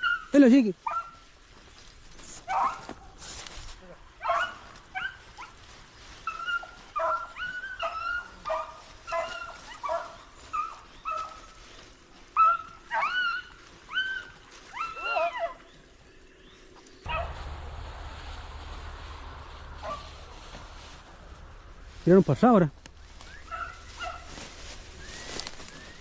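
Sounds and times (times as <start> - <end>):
hounds baying: 0.0 - 1.2, 2.2 - 3.4, 4.2 - 5.6, 6.2 - 11.6, 12.2 - 15.7, 17.1 - 17.8, 18.8 - 26.0
steady low rumble: 17.0 - 26.0.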